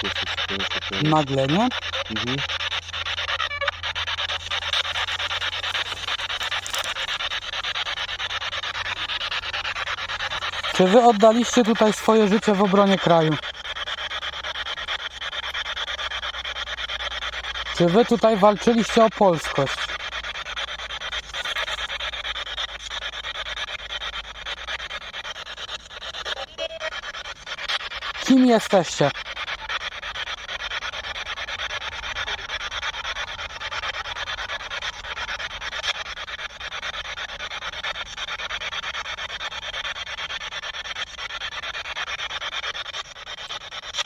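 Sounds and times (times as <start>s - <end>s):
stuttering radio static: 0.0s - 13.5s, 17.7s - 23.2s, 28.2s - 29.2s.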